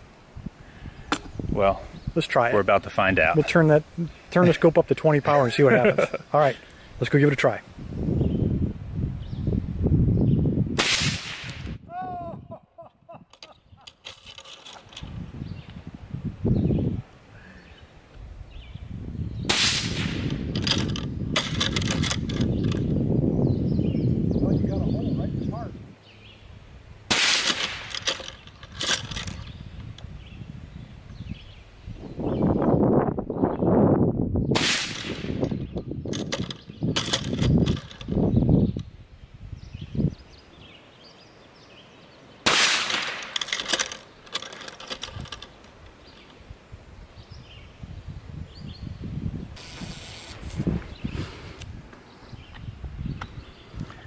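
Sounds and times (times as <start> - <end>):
rifle shot hitting steel: 10.8 - 11.6, 19.5 - 20.3, 27.1 - 28.0, 34.6 - 35.4, 42.4 - 43.4
metal lock and chains rattling: 13.3 - 15.1, 20.5 - 22.9, 27.5 - 29.5, 36.1 - 38.2, 42.9 - 46.3.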